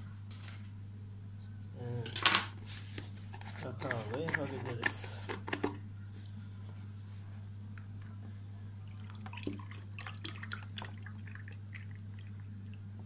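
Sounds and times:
liquid dripping and splashing: 8.9 - 13.0.

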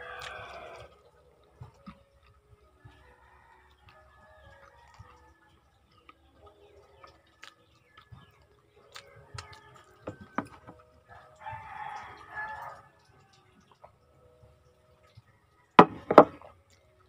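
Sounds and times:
rooster crowing: 0.0 - 1.0, 9.4 - 13.4
eating by hand clicks and smacks: 0.0 - 15.4.

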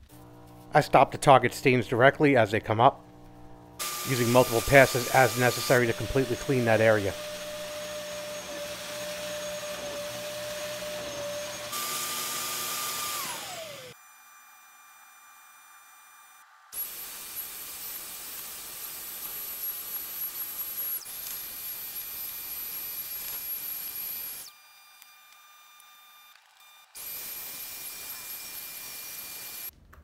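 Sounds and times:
shampoo vacuum running: 2.7 - 14.0, 16.8 - 25.3, 27.0 - 29.7.

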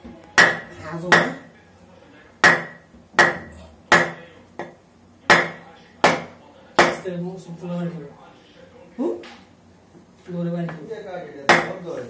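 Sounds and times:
turtle shell struck with hard object: 0.4 - 1.3, 2.4 - 7.0.

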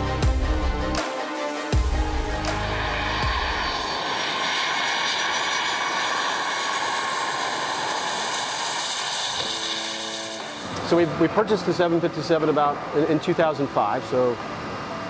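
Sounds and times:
jet engines roaring: 1.8 - 13.4.

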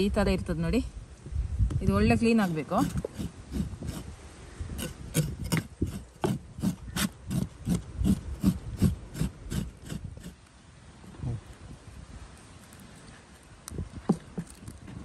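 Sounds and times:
knife scraping fish skin: 2.3 - 4.1, 4.8 - 10.4.

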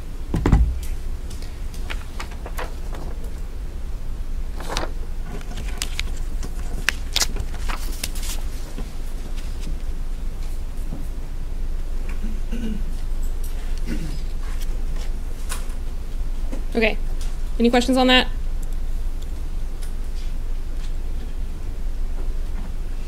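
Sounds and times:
low room hum: 0.0 - 23.0
paper rustling: 1.2 - 3.6, 4.5 - 9.8.

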